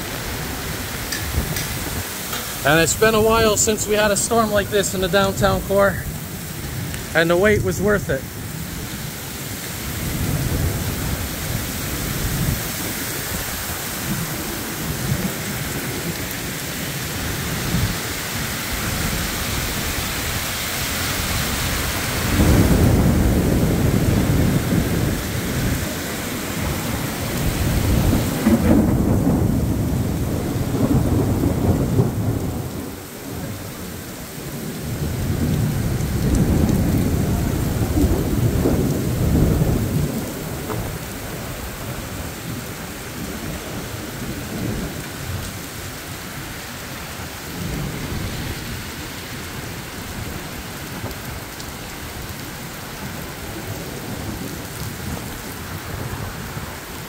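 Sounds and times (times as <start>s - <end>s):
heavy rain pouring: 0.0s - 57.0s
low thunder rolling: 21.9s - 33.0s, 34.8s - 45.3s.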